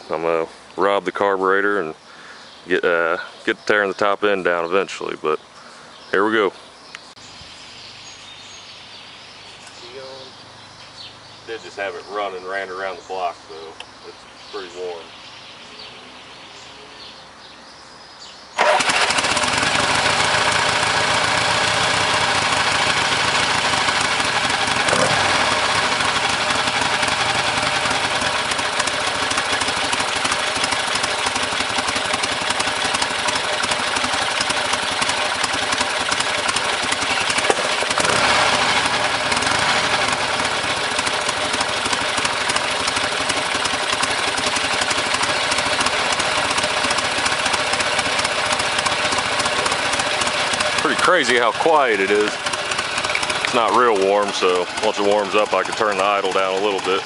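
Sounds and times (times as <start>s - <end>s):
motorcycle engine idling: 18.6s - 57.0s.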